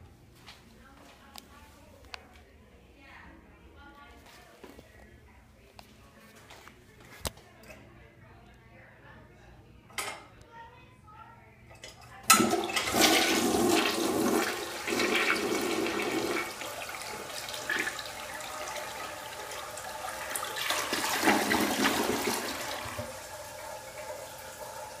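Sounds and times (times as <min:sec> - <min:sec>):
toilet flushing: 0:12.3 - 0:25.0.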